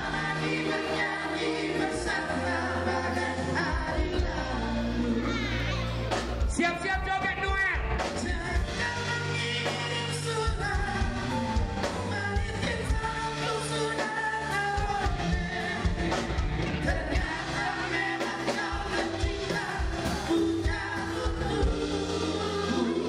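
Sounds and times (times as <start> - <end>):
live band playing pop ballad: 0.0 - 23.0
person singing: 8.1 - 23.0.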